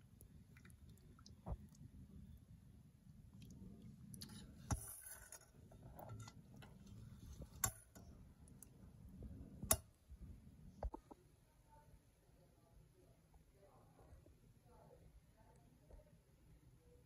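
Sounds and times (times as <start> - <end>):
ladle stirring thick stew: 3.2 - 9.9.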